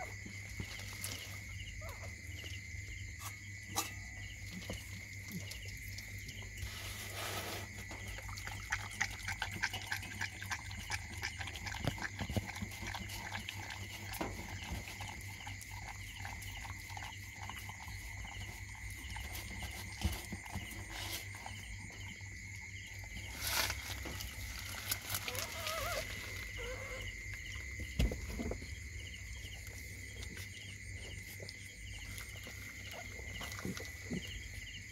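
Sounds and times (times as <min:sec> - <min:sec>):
puppy lapping from metal bowl: 0:08.0 - 0:20.8.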